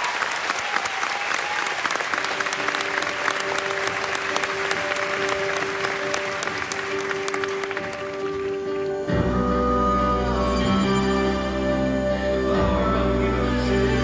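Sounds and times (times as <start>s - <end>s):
audience applauding: 0.0s - 9.2s
music with long steady notes: 2.1s - 14.0s.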